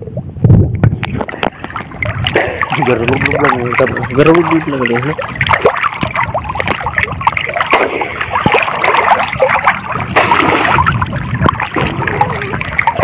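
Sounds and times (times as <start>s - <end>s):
seawater splashing against microphone: 0.6s - 13.0s.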